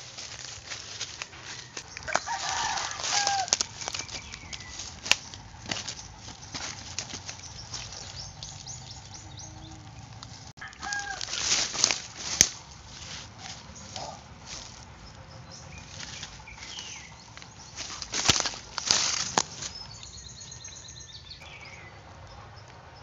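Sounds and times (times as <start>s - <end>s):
dry leaves rustling and crackling: 0.0s - 21.7s.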